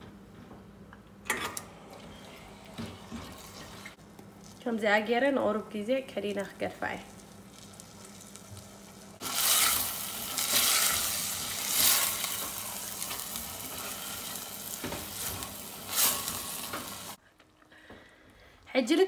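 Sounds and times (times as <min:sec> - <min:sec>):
chicken sizzling in hot oil: 0:07.0 - 0:17.2.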